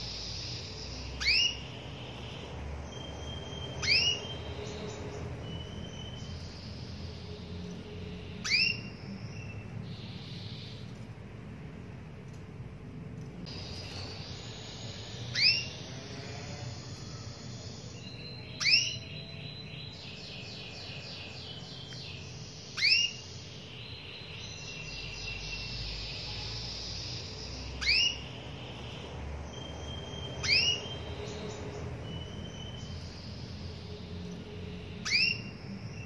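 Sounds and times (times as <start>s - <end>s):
canary rising call notes: 0.0s - 4.9s, 8.4s - 9.0s, 13.5s - 18.0s, 27.8s - 29.0s, 29.6s - 31.4s, 35.0s - 35.5s
faint bird twittering: 0.0s - 12.8s, 13.4s - 36.0s.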